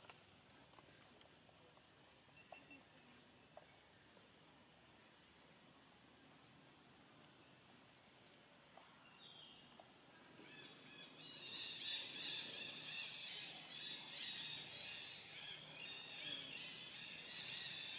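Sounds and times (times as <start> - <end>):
birds chirping: 8.6 - 17.9.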